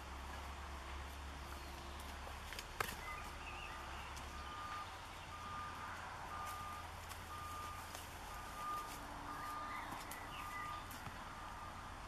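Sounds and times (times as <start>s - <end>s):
vehicle reversing alarm beeping: 3.0s - 12.0s.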